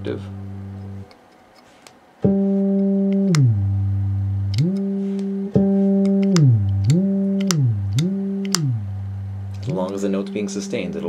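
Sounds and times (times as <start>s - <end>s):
bass guitar note pitch sweeping: 0.0s - 1.0s, 2.2s - 11.0s.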